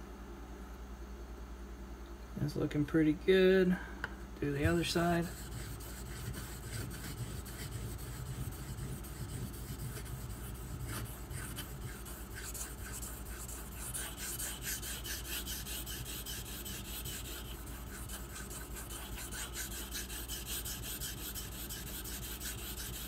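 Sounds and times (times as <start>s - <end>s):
knife scraping on whetstone: 4.7s - 23.0s.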